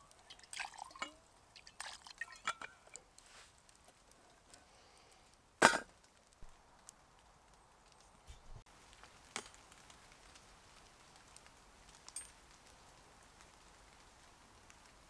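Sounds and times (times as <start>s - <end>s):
faint steady hiss: 0.0s - 15.0s
wood fire popping: 0.0s - 15.0s.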